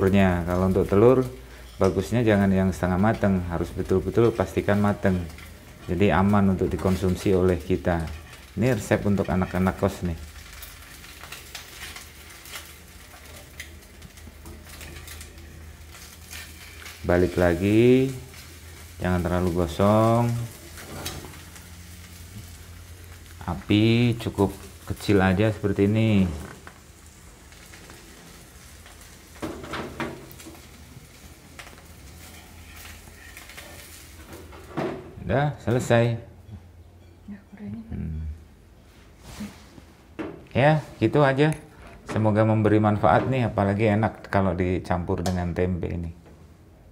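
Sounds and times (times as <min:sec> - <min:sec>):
egg sizzling in oil: 0:00.0 - 0:34.8
metal tongs scraping pan: 0:14.7 - 0:17.0, 0:32.1 - 0:34.6.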